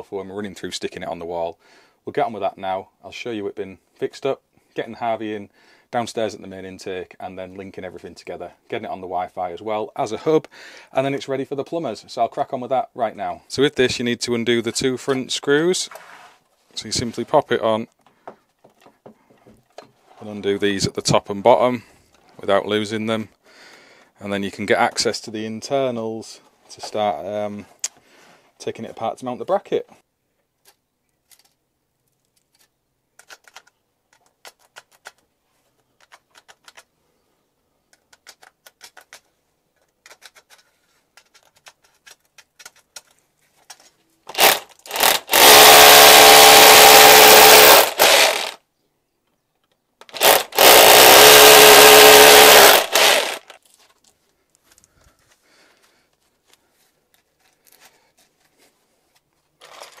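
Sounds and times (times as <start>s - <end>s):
clicks and knocks of metal: 37.9s - 43.9s
hammer drill boring into brick: 44.3s - 48.6s, 50.0s - 53.6s.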